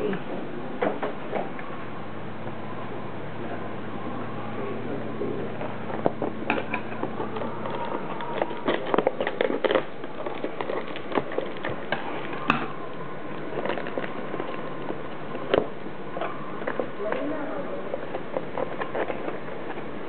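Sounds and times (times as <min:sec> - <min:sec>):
plastic crinkling: 0:05.4 - 0:20.0.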